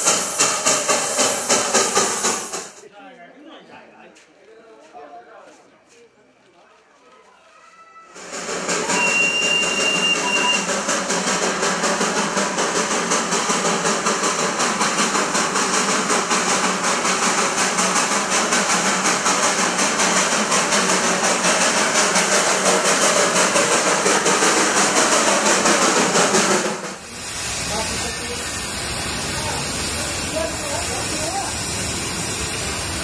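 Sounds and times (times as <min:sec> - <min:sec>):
steam hissing: 0:00.0 - 0:02.8, 0:08.2 - 0:33.0
steam locomotive exhaust beats: 0:00.0 - 0:02.8, 0:08.2 - 0:33.0
short high-pitched tone: 0:08.8 - 0:10.7.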